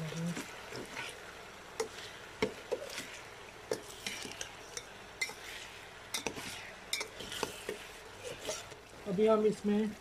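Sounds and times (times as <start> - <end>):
faint sizzle: 0.0 - 10.0
spoon scraping metal pot: 2.7 - 8.8.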